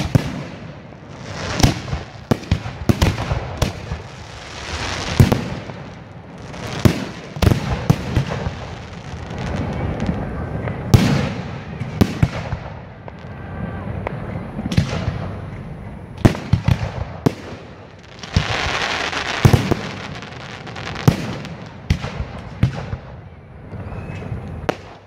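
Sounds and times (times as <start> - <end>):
fireworks hiss: 0.0 - 12.3, 16.3 - 21.7
fireworks booming: 0.0 - 25.0.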